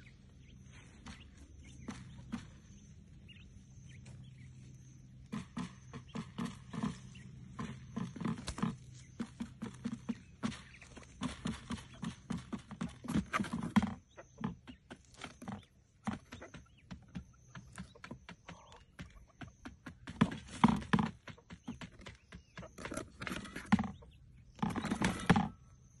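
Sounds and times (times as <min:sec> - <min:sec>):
quail pecking and scratching: 0:00.0 - 0:26.0.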